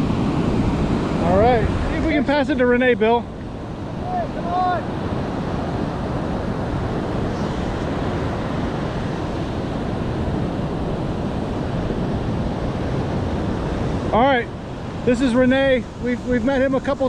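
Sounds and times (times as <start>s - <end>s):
surf breaking on beach: 0.0s - 17.0s
wind buffeting microphone: 0.0s - 17.0s.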